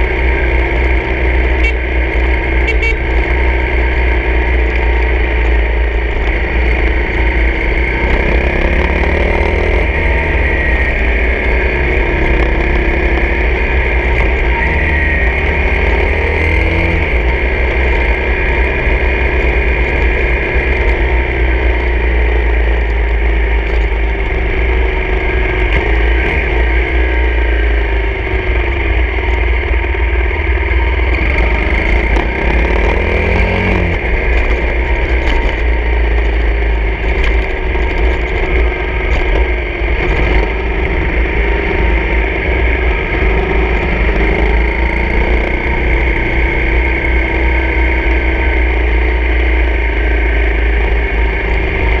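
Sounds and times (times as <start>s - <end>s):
dirt bike engine revving: 6.1s - 21.2s, 30.8s - 52.0s.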